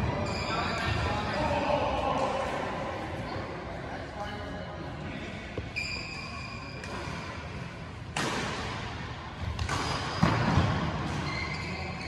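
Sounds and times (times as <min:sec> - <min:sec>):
rackets striking shuttlecock: 0:08.1 - 0:08.8, 0:09.5 - 0:11.2.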